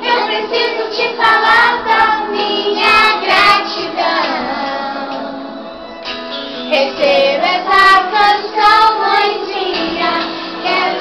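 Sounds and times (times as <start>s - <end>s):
children singing together: 0.0s - 5.8s, 6.8s - 11.0s
background music: 0.0s - 11.0s.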